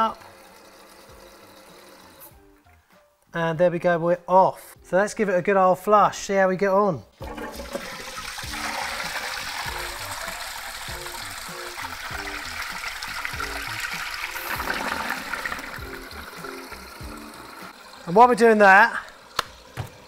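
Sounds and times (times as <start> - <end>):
toilet flushing: 0.0 - 2.6, 7.2 - 20.0
cistern refilling: 0.0 - 2.8, 7.2 - 20.0.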